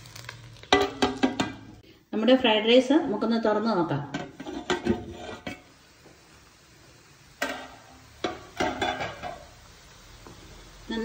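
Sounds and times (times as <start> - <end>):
spatula scraping a pan: 4.1 - 5.7.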